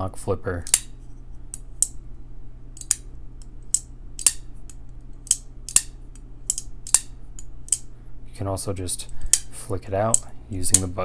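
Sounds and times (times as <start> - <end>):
flipper knife metallic clicks: 0.6 - 0.9, 2.8 - 7.9, 10.1 - 11.0.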